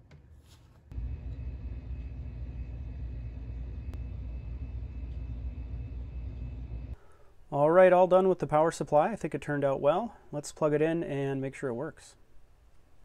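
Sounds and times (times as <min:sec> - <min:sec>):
low mechanical rumble: 0:00.9 - 0:07.0
faint steady hum: 0:00.9 - 0:07.6.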